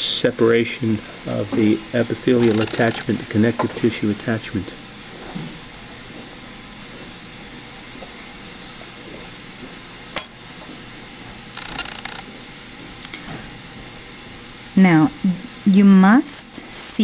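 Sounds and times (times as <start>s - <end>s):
background hiss: 0.0s - 5.6s
scratchy rustle: 2.4s - 3.1s.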